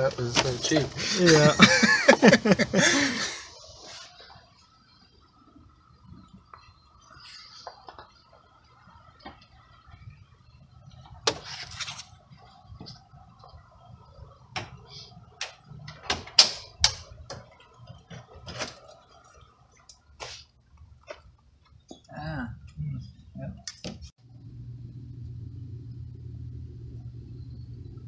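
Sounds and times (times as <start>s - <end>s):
sharp clicks and knocks: 15.4s - 18.7s.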